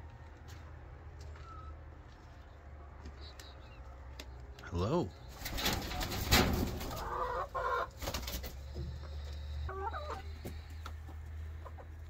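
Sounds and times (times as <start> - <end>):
chickens clucking: 5.2 - 12.0.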